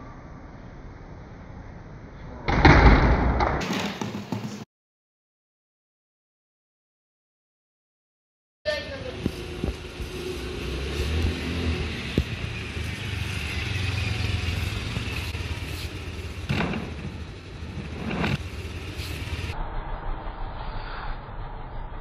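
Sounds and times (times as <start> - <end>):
scooter engine running: 8.9 - 19.6.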